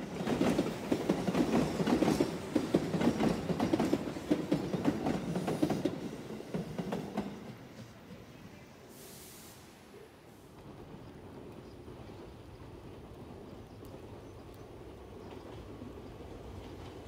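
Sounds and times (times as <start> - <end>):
train wheels clattering over rail joints: 0.1 - 7.6.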